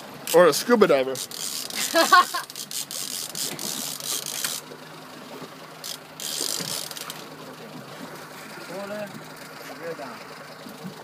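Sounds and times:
fishing reel ratcheting clicks: 0.2s - 4.7s, 5.8s - 7.2s.

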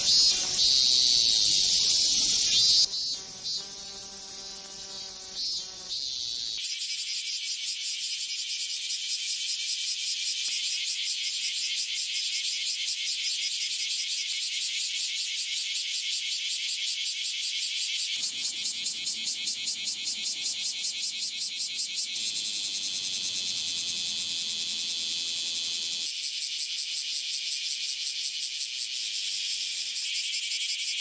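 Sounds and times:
cicada buzzing: 0.0s - 6.6s, 18.2s - 30.0s.

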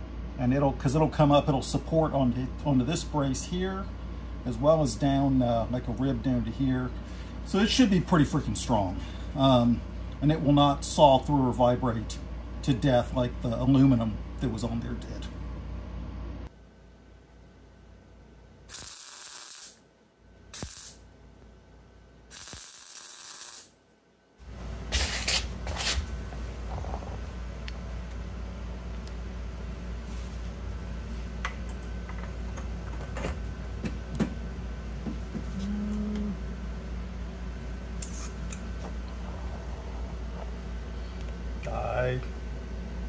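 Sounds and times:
steady low hum: 0.0s - 43.0s
welder crackling hiss bursts: 18.7s - 19.8s, 20.5s - 21.0s, 22.3s - 23.8s.

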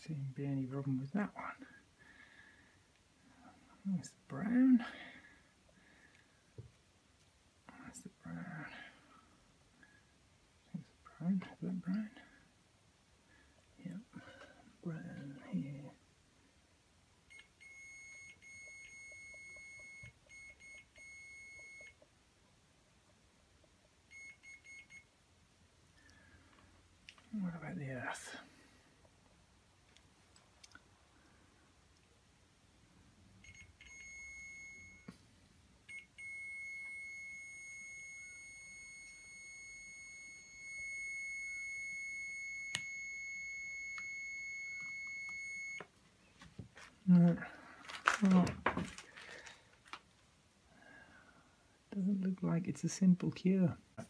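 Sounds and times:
multimeter continuity beep: 17.3s - 22.1s, 24.1s - 25.1s, 33.4s - 35.1s, 35.8s - 45.9s.

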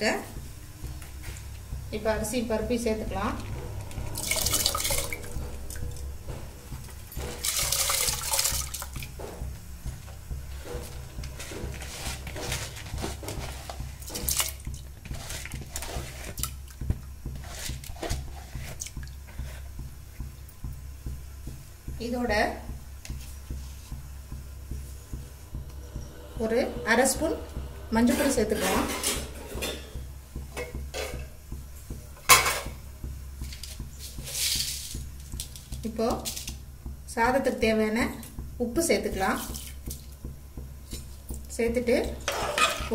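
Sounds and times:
low steady hum: 0.0s - 42.9s
small splashes and drips: 7.4s - 9.2s
metal utensils clinking on pot: 42.2s - 42.9s.

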